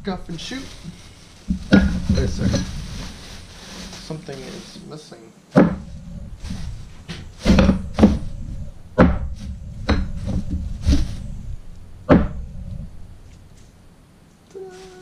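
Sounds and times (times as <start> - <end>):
plastic bag rustling: 0.0 - 5.0, 5.8 - 11.7, 14.6 - 15.0.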